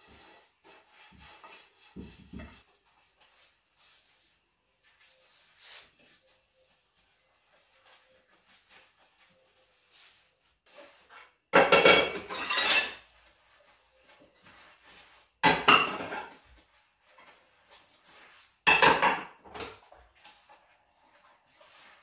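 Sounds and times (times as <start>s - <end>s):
kitchenware clattering: 10.9s - 13.2s, 15.4s - 16.6s, 18.6s - 20.7s.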